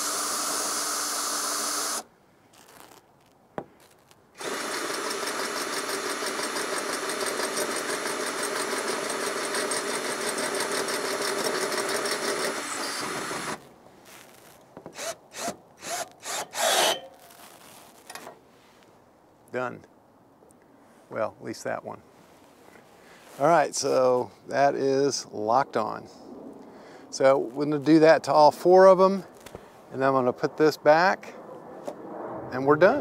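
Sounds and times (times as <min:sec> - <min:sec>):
drill click: 0:00.0 - 0:02.1, 0:04.4 - 0:13.6, 0:14.8 - 0:17.1
power drill spinning: 0:00.0 - 0:02.1, 0:04.4 - 0:17.1.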